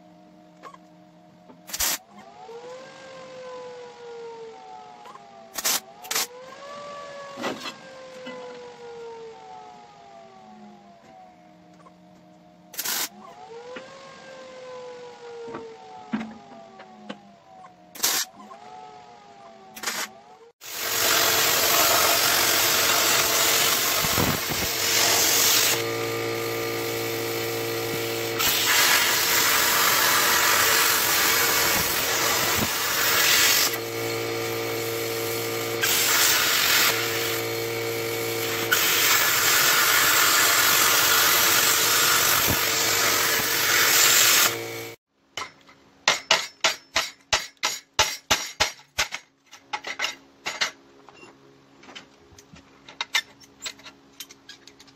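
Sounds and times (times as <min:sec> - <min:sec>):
welding arc crackling and hissing: 0:01.7 - 0:02.0, 0:12.8 - 0:13.1, 0:19.8 - 0:45.0.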